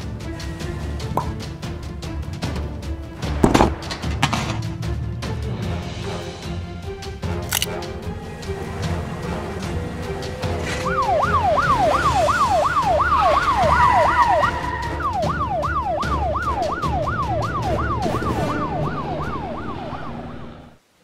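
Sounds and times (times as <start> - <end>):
police car siren wailing: 8.8 - 20.8.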